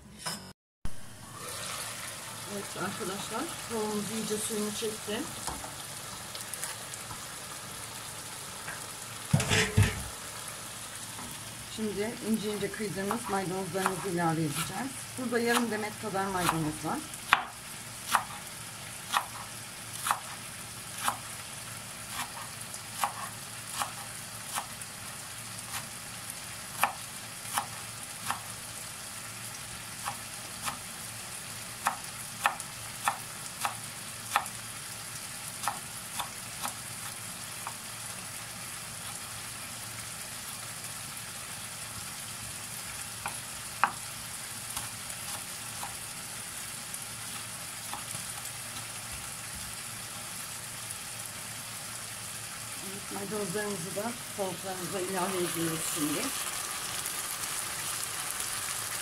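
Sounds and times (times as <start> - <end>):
chicken sizzling in a pan: 0.9 - 59.0
knife chopping on cutting board: 18.1 - 18.4, 19.1 - 20.4, 22.1 - 24.7.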